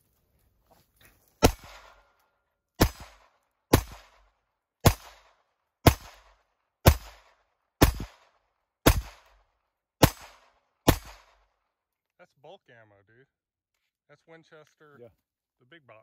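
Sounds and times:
pistol shots with echo: 1.4 - 2.1, 2.8 - 11.6.

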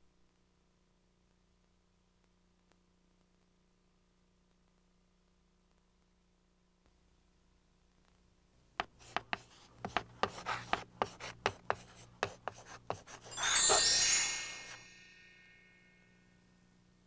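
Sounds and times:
chalk tapping and scraping on chalkboard: 8.8 - 13.8
bright shimmering chime: 13.2 - 16.5.

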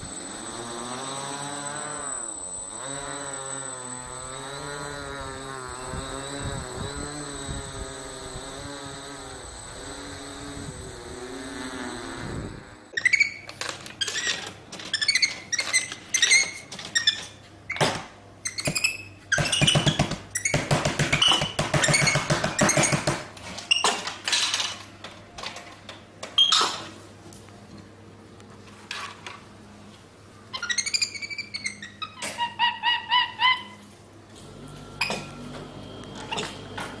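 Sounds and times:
rapid low buzzing: 0.0 - 12.9
monkey squeaking and chirping: 30.5 - 33.8.

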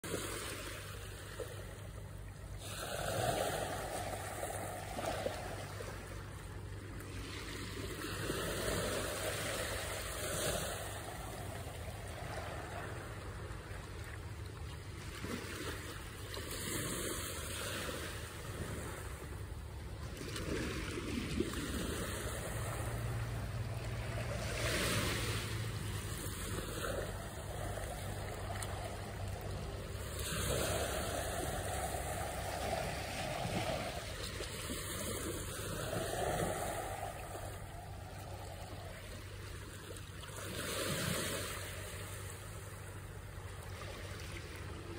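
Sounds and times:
small waves washing on shore: 0.0 - 44.9.

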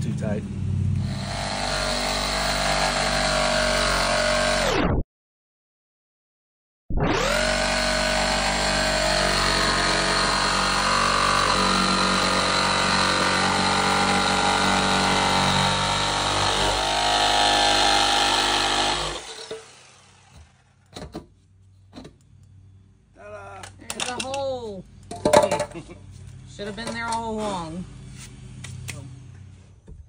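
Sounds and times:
jigsaw cutting: 1.0 - 4.8, 7.0 - 20.6.

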